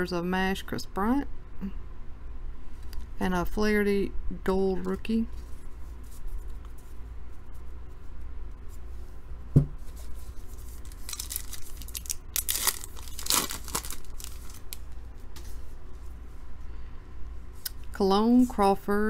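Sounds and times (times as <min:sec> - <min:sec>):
thump: 0:09.5 - 0:09.8
plastic wrapper tearing: 0:10.7 - 0:14.9.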